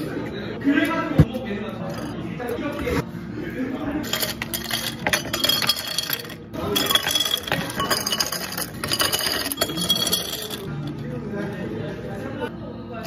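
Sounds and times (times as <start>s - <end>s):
ice cubes clinking against glass: 4.0s - 10.7s.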